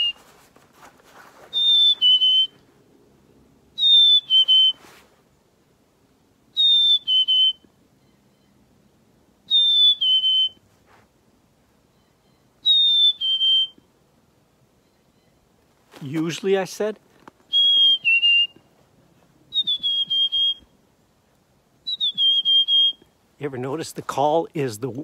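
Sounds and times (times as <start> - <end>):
person whistling two-note song: 19.5 - 20.6.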